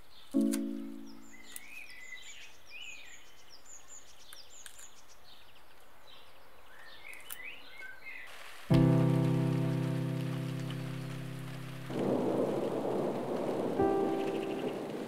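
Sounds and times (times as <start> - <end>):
small birds chirping: 0.0 - 15.0
scissors snipping: 0.4 - 0.8.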